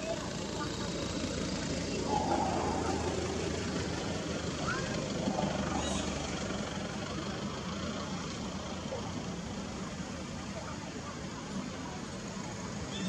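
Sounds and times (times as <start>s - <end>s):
low mechanical hum: 1.8s - 7.8s
faint high chirps: 1.9s - 6.6s.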